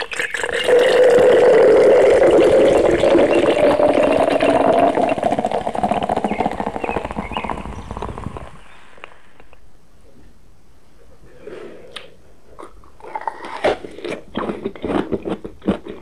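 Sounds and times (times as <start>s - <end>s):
drink pouring and splashing: 0.0s - 8.6s.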